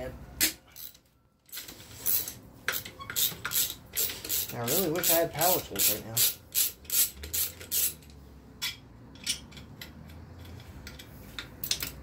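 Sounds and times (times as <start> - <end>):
socket ratchet clicking: 2.7 - 8.2.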